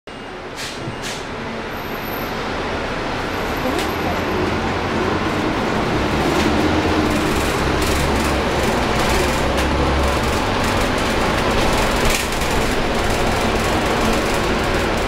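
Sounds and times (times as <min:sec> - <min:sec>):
diesel engine low rumble: 0:00.1 - 0:15.0
road noise: 0:00.1 - 0:15.0
bus body rattles: 0:05.2 - 0:15.0.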